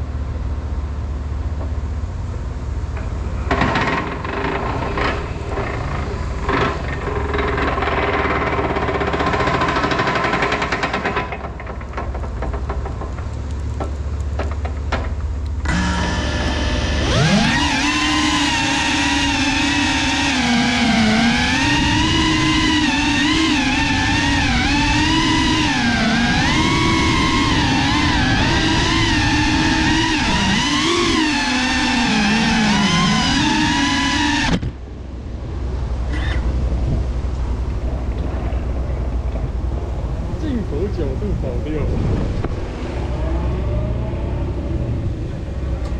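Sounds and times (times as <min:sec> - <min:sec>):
drone motors whining: 0:15.4 - 0:45.9
wind buffeting microphone: 0:36.5 - 0:45.7.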